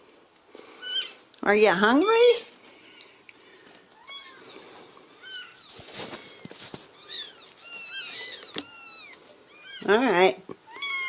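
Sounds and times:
kittens mewing: 3.9 - 9.9, 10.5 - 11.0
rustling and scratching on blanket: 4.4 - 10.0.

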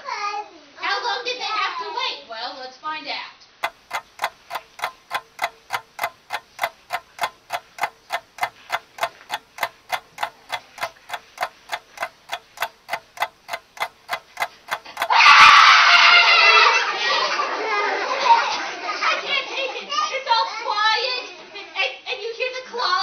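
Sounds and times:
clock ticking: 3.6 - 15.7.

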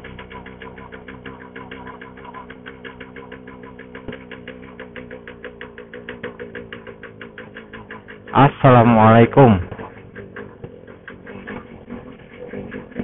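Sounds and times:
motorcycle engine at low revs: 0.0 - 13.0.

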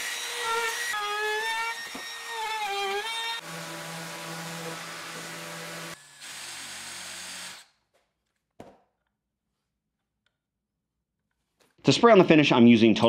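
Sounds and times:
power drill boring into wood: 0.0 - 7.7.

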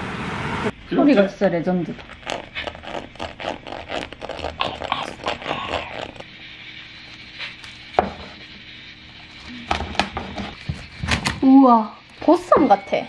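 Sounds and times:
spoon scraping crunchy crackling: 1.9 - 6.2
knife chopping through crackling: 9.7 - 11.4.

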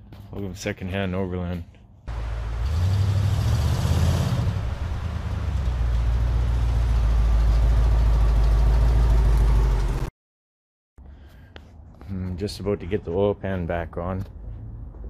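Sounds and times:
pickup truck engine running: 2.1 - 10.1.

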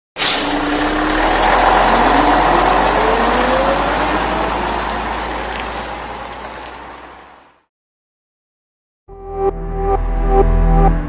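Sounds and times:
short air hiss: 0.2 - 0.6
heavy vehicle engine accelerating: 0.2 - 7.7.

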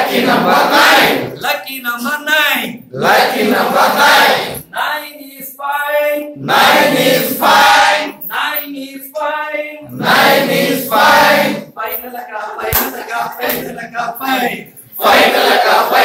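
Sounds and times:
group chanting in unison: 0.0 - 1.4, 2.9 - 4.7, 6.2 - 8.2, 9.8 - 11.8, 12.6 - 16.0.

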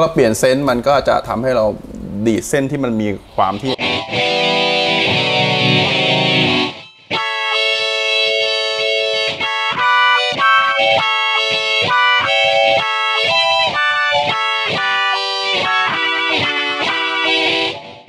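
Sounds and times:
electric guitar vowel-like tone: 3.5 - 18.0.

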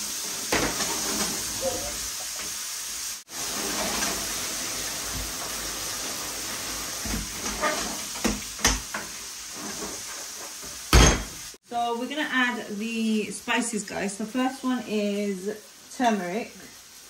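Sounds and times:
tap water running into colander: 3.3 - 9.2.

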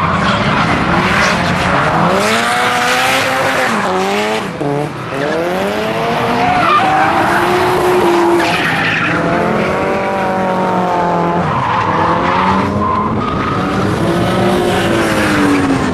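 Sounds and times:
car engine revving: 0.0 - 15.9.

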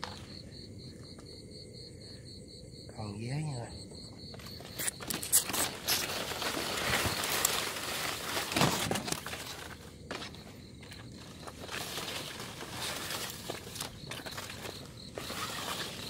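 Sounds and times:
footsteps in undergrowth: 4.3 - 16.0
leaves and branches rustling: 4.4 - 16.0.

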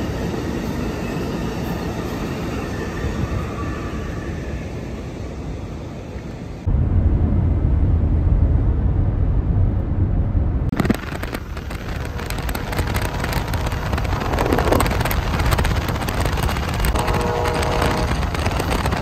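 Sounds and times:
train rolling on track: 0.0 - 19.0
wind buffeting and road noise: 5.0 - 19.0
microphone wind crackling: 6.7 - 19.0.

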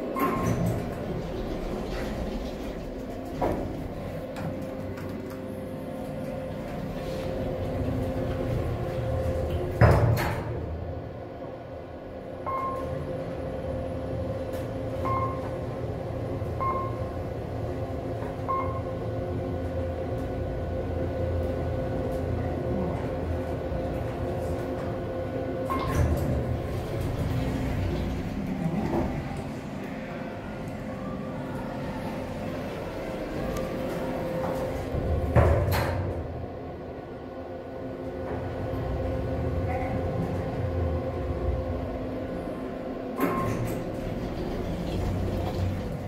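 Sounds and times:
elevator mechanism clatter: 0.0 - 10.8, 24.0 - 36.4, 43.1 - 46.0
elevator doors sliding and thudding: 0.0 - 46.0
elevator hum: 0.0 - 46.0.

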